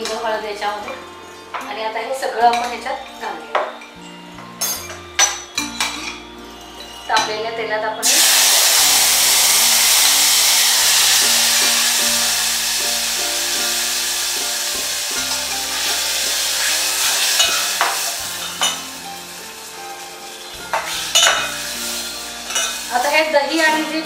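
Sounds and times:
background music: 0.0s - 24.0s
meat sizzling in hot oil: 8.0s - 24.0s.

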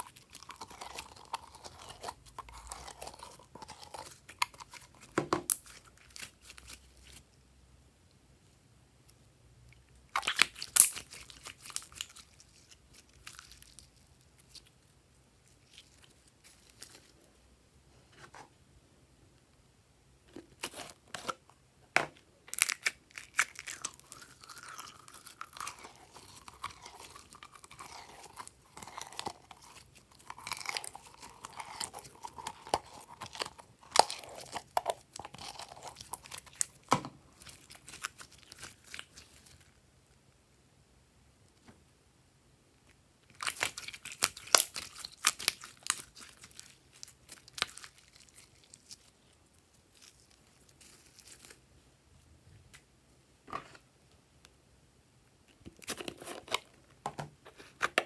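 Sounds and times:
slime crackling and popping: 10.1s - 14.7s, 43.3s - 49.2s.

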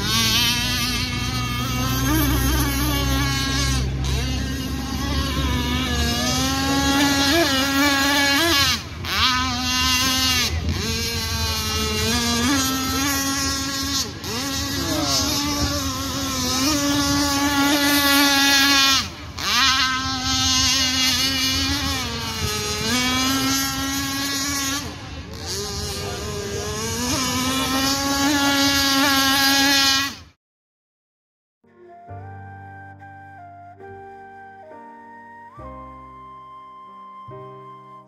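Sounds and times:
two-stroke boat engine revving: 0.0s - 30.4s.

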